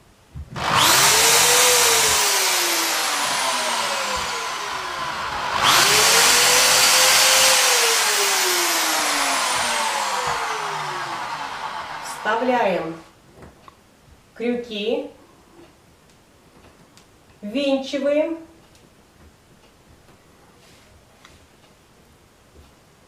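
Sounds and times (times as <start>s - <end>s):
electric drill boring into wood: 0.6s - 13.1s.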